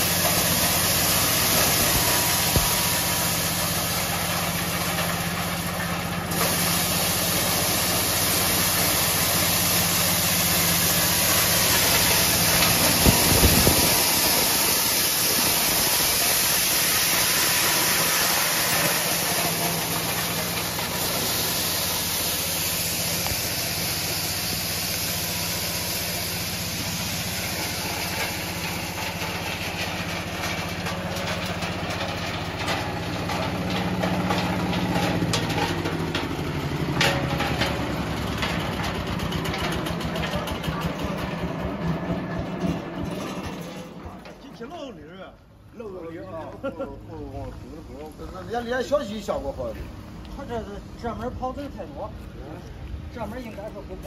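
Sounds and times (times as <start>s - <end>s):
hiss of kernels spraying: 0.0s - 36.9s
engine drone: 0.0s - 44.3s.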